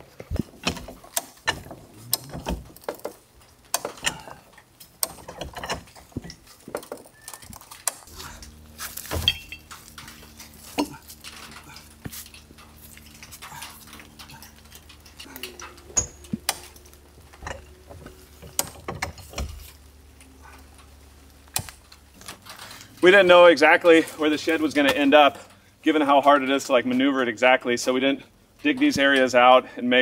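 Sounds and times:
metal clicks and clanks of jack: 0:00.2 - 0:22.9.

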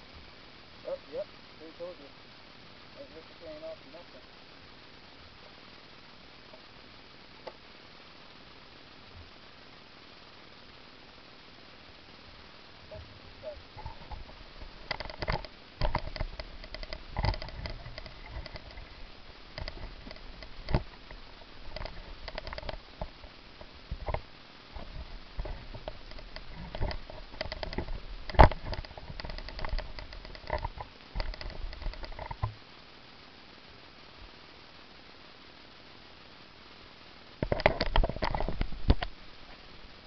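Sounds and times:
plastic bottle rustling and clicking: 0:13.8 - 0:22.8, 0:24.8 - 0:32.4.

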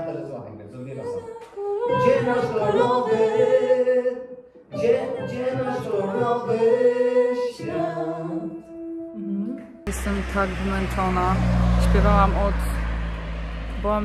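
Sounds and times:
person singing sustained notes: 0:09.9 - 0:14.0.

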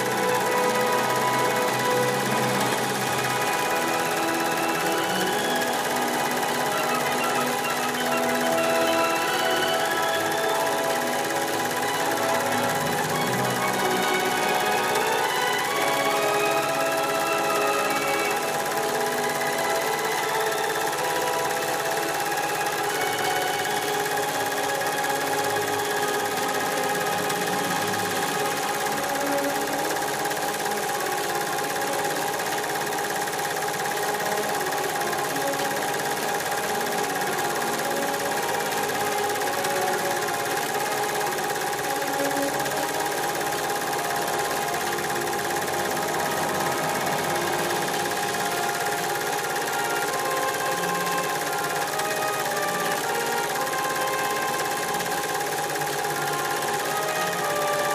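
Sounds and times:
mechanical whirring and rattling: 0:00.0 - 0:57.9.

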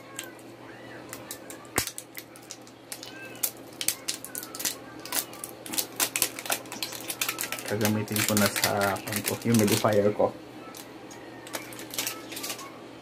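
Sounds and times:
plastic cap and wrapping crackling: 0:01.0 - 0:10.1, 0:10.7 - 0:12.7.

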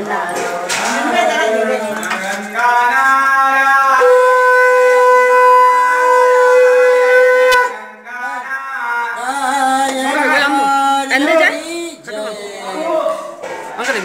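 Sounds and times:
conch shell blown: 0:03.9 - 0:07.8
voices: 0:07.6 - 0:14.0.

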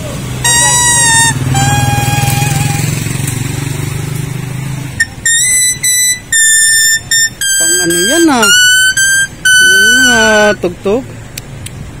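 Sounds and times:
vehicle engine humming: 0:00.0 - 0:12.0
leaf whistling melody: 0:00.4 - 0:03.2, 0:05.0 - 0:10.6.

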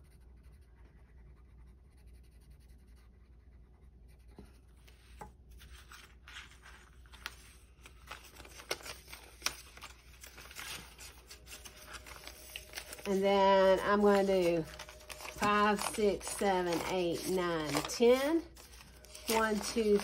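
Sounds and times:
pencil scratching on paper: 0:00.0 - 0:05.3
paper bills rustling: 0:04.8 - 0:20.0.

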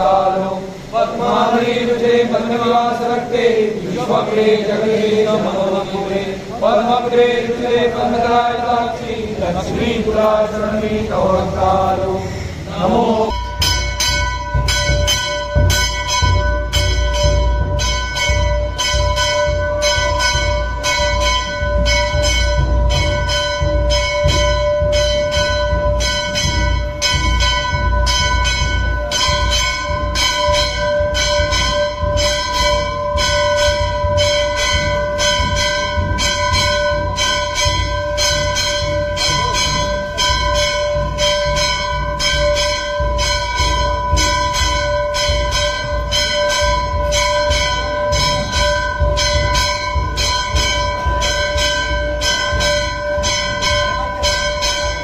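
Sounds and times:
steady ringing tone: 0:00.0 - 0:55.0
temple bells ringing: 0:00.0 - 0:55.0
deep pounding: 0:12.8 - 0:55.0.

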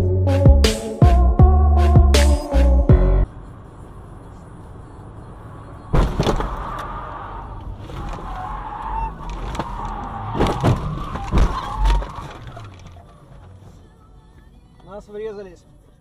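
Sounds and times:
car crash impacts: 0:05.9 - 0:07.1, 0:09.4 - 0:12.7.

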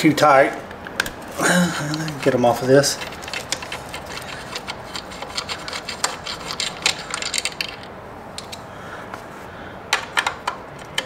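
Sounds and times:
screwdriver clicking and scraping: 0:01.9 - 0:08.6, 0:10.0 - 0:11.0.

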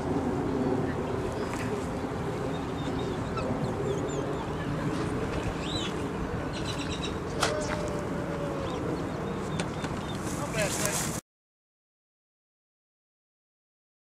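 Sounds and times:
birds chirping: 0:00.5 - 0:11.1.

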